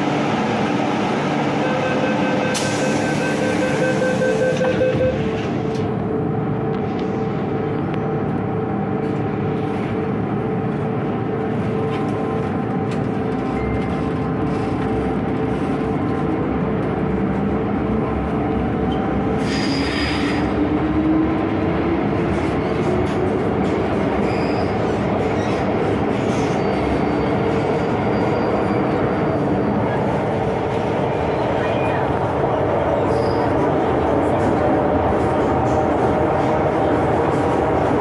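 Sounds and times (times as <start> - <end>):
train running noise: 0.0 - 38.0.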